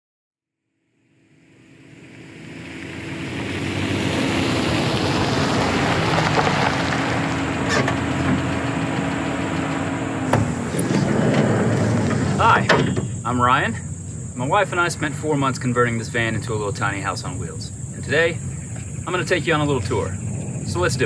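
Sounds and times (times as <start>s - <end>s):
outdoor hum and hiss: 1.2s - 21.0s
sliding van door opening: 5.3s - 13.4s.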